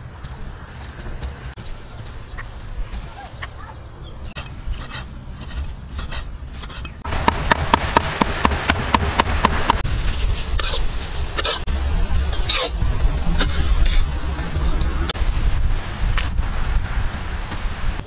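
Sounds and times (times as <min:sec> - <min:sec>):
spatula scraping in a wok: 0:04.4 - 0:07.0, 0:10.0 - 0:15.1.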